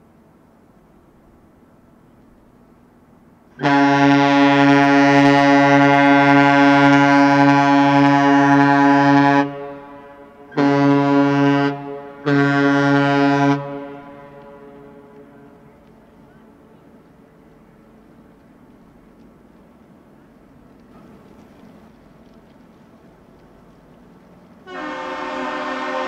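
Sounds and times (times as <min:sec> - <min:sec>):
ship horn blasts: 0:03.5 - 0:17.0, 0:24.6 - 0:26.0.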